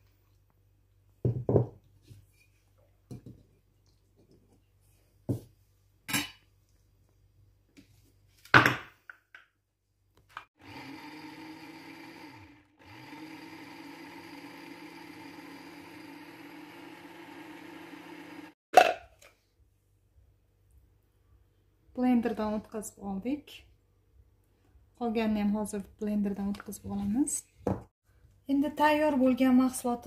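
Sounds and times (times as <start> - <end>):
electric blender motor running: 10.6 - 18.6.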